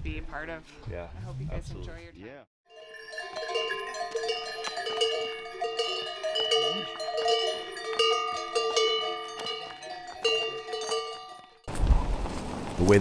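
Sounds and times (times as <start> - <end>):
animal bells clanking: 2.7 - 11.7.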